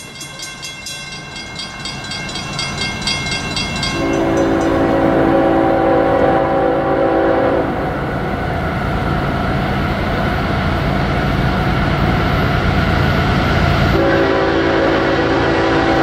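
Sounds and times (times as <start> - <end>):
train air horn: 3.9 - 8.0, 14.0 - 16.0.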